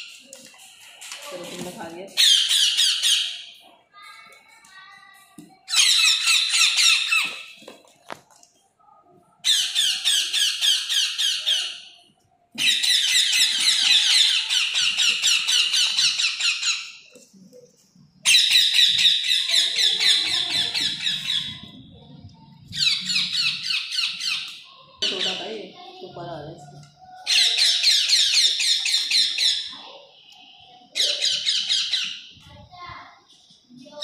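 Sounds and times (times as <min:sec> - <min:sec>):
parrot chicks begging calls: 0:02.2 - 0:03.6, 0:05.7 - 0:07.6, 0:09.4 - 0:12.0, 0:12.6 - 0:17.1, 0:18.2 - 0:25.6, 0:27.2 - 0:30.2, 0:30.9 - 0:32.4.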